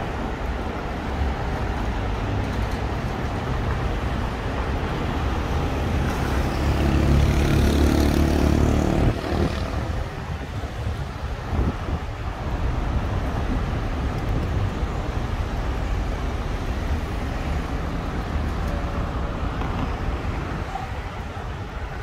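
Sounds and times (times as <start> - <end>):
hum of traffic: 0.0 - 22.0
vehicle engine passing: 6.2 - 9.9.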